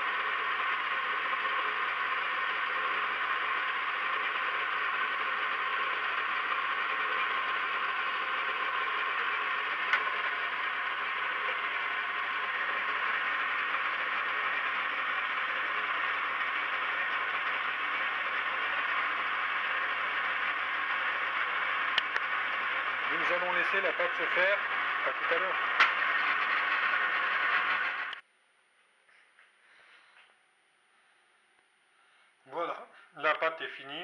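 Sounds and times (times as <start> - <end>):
stand mixer motor running: 0.0 - 28.2.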